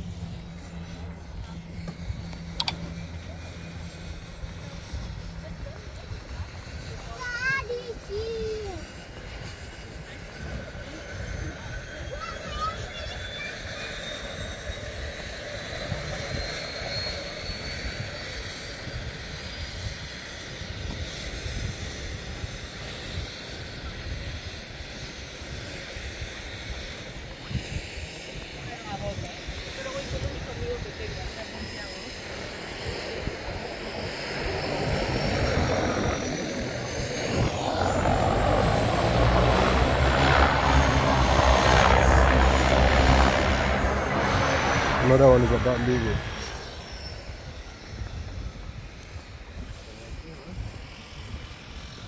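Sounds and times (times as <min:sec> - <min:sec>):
aircraft engine droning: 0:00.0 - 0:52.0
faint high whine rising: 0:29.8 - 0:49.0.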